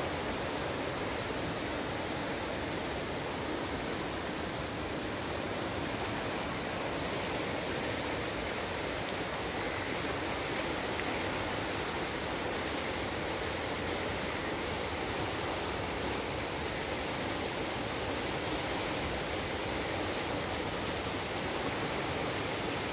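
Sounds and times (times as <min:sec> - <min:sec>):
floodwater rushing: 0:00.0 - 0:22.9.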